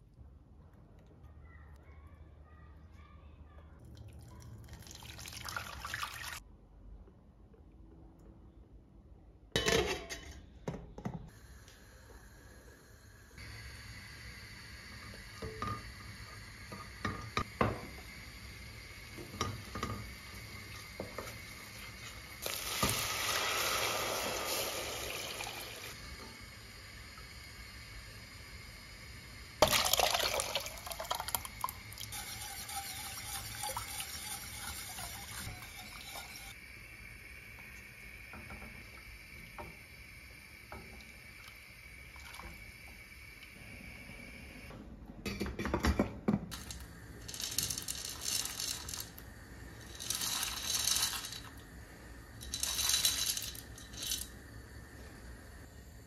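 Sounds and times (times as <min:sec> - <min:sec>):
liquid pouring into a pot: 0:03.9 - 0:06.4, 0:18.0 - 0:26.0, 0:29.6 - 0:36.5.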